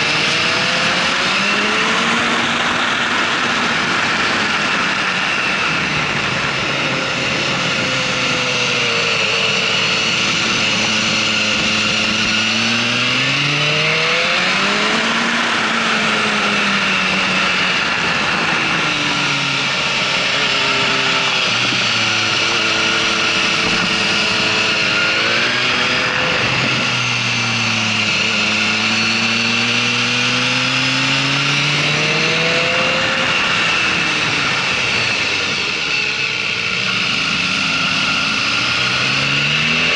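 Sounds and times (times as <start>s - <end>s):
wind rush: 0.0s - 30.5s
motorcycle engine revving: 0.0s - 39.9s.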